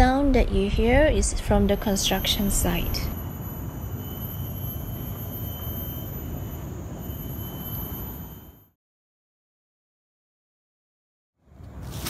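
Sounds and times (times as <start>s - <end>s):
distant construction rumble: 0.0s - 8.5s
faint thin high tone: 1.6s - 8.8s.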